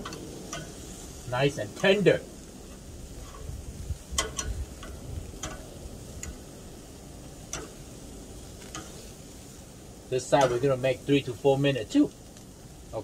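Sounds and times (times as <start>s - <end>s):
seafood sizzling on grill: 0.0s - 13.0s
metal tongs clicking: 4.2s - 6.5s, 7.5s - 7.8s, 8.6s - 9.0s.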